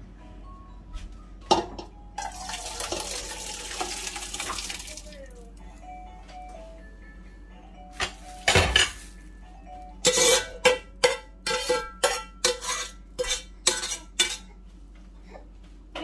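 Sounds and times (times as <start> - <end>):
utensil tapping metal pan: 10.0 - 14.4
utensil scraping metal pan: 10.0 - 14.5.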